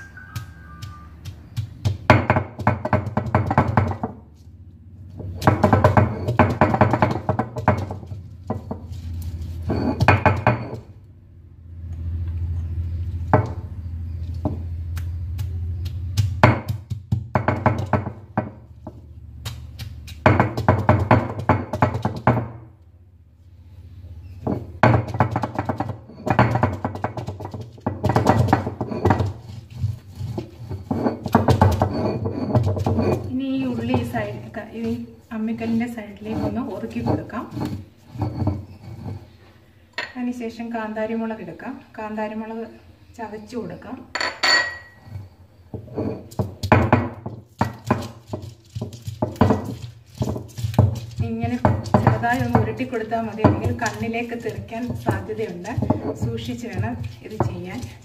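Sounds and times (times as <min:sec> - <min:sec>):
stone roller knocking on stone slab: 0:00.2 - 0:04.2, 0:05.2 - 0:10.9, 0:13.3 - 0:13.7, 0:15.3 - 0:19.0, 0:19.7 - 0:22.6, 0:24.4 - 0:39.2, 0:45.7 - 0:58.0.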